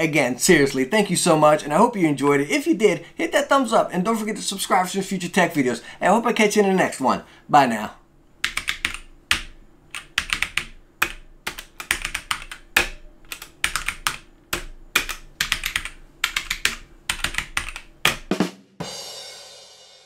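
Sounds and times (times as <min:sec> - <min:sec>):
mechanical keyboard typing clicks: 0:08.4 - 0:18.2.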